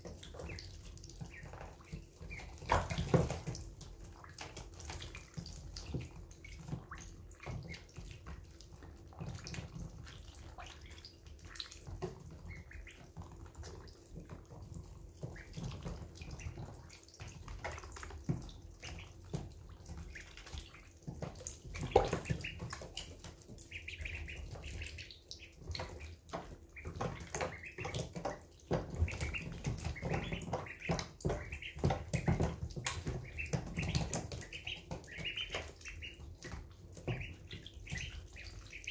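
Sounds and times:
ducklings peeping: 0.0 - 38.9
ducklings splashing and slurping water: 0.0 - 38.9.

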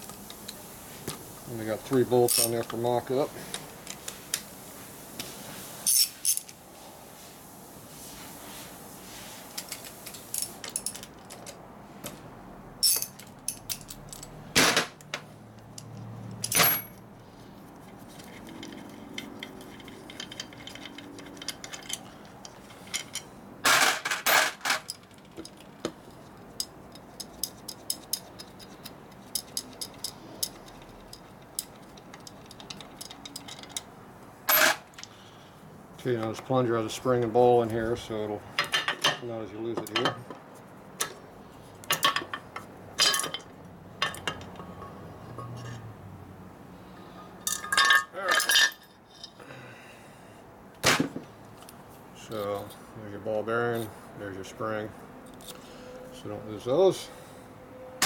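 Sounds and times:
metal parts clinking: 2.2 - 2.8, 5.8 - 6.6, 9.6 - 11.6, 12.8 - 15.0, 15.6 - 17.1, 17.8 - 25.8, 26.5 - 35.2, 43.0 - 45.8, 47.3 - 49.4.

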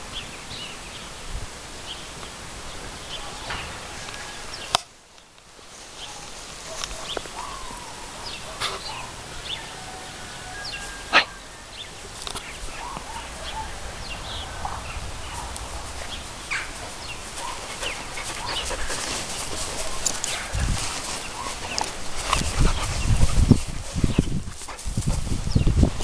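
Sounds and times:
short animal calls: 11.0 - 11.4.

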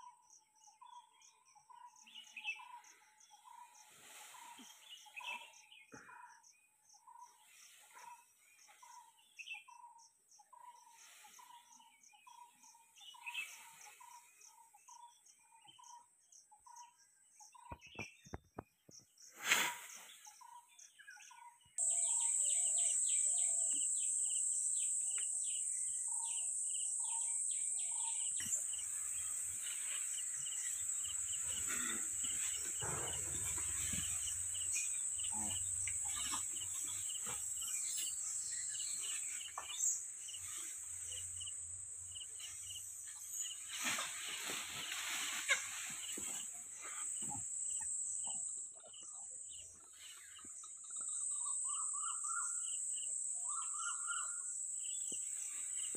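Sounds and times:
high insect drone: 21.8 - 49.0
dense chirping: 21.8 - 55.9.

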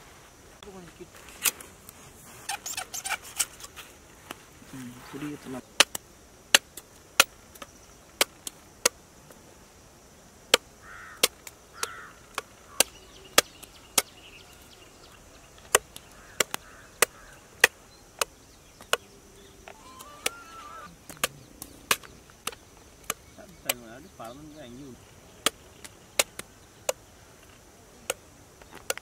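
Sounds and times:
machete chopping coconut: 5.8 - 9.0, 11.2 - 14.1, 15.7 - 19.0, 21.1 - 23.9, 25.4 - 25.6.

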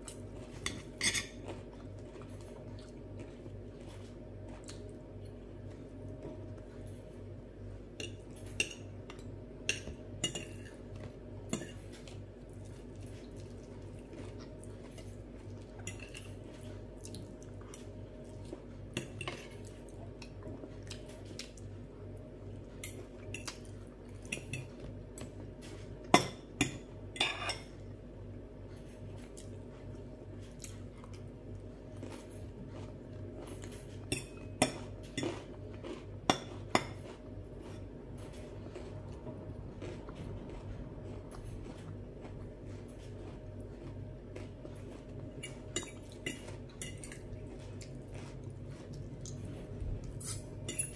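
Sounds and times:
steady low hum: 0.0 - 50.9
cutlery clinking on glass plates: 0.6 - 1.4, 26.2 - 27.7.

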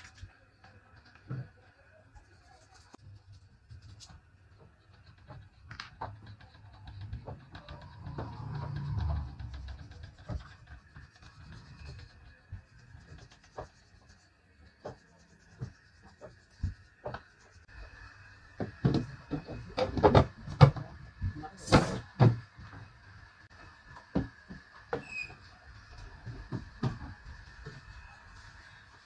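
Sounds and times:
wood scraping: 2.7 - 17.7
wooden knocks and clatter: 4.6 - 13.8, 18.6 - 22.9, 26.2 - 27.8.

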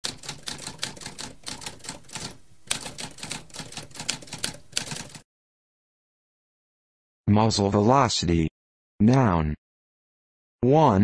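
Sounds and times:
typewriter typing: 0.0 - 5.2.

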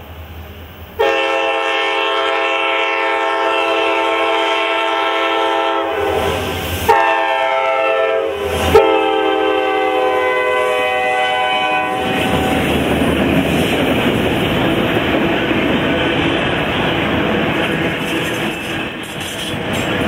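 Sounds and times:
passing locomotive rumble: 0.0 - 20.0
locomotive air horn blasts: 1.0 - 12.6.

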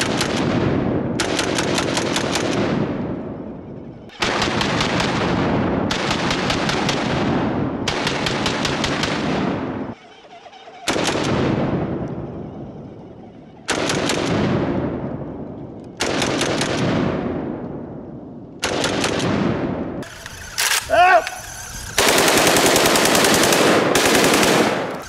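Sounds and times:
automatic rifle fire: 0.0 - 3.1, 4.1 - 9.8, 10.8 - 12.0, 13.7 - 14.8, 16.0 - 17.5, 18.6 - 25.0
gunfire echo: 22.0 - 25.0.

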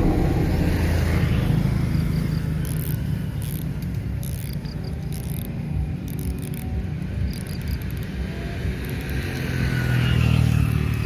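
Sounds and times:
low rumble: 0.0 - 2.8
insects chirping: 6.1 - 9.5.

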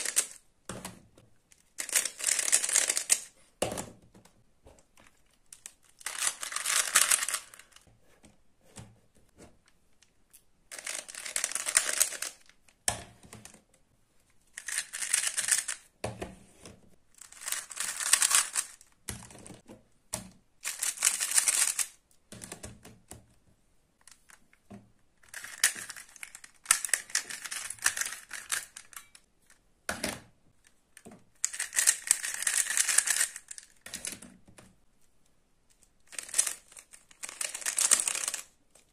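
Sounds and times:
puzzle cube clicking: 31.4 - 34.2, 36.1 - 38.6.

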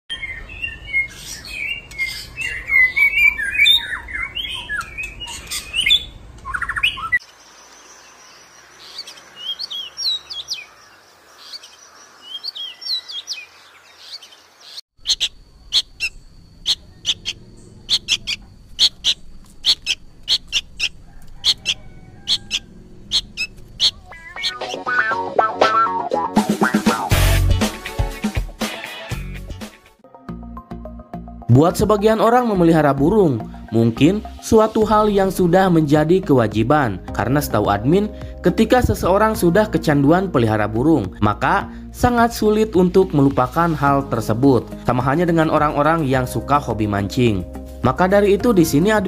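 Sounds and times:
songbirds singing: 0.1 - 25.8, 31.5 - 49.0
rapid sharp high bird notes: 15.0 - 28.0.

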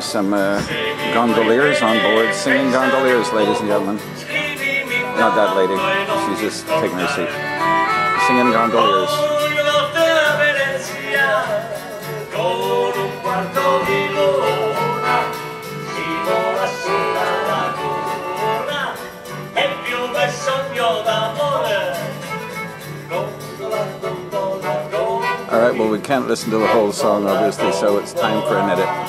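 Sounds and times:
people singing: 0.0 - 7.7, 8.4 - 29.0
instrumental accompaniment: 0.0 - 29.0.

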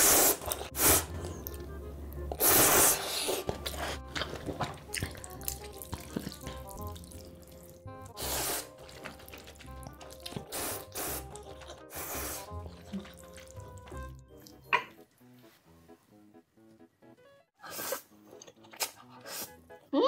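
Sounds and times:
person slurping noodles: 0.0 - 1.2, 2.3 - 4.2, 8.1 - 9.6, 10.3 - 13.8
soft background music: 0.0 - 20.0
wet chewing: 2.3 - 14.7.

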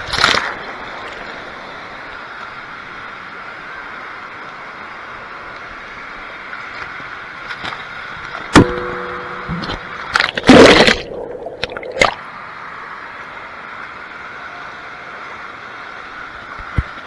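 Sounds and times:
splash into pool: 0.0 - 0.6, 10.1 - 12.2
sharp knock: 8.6 - 9.9.

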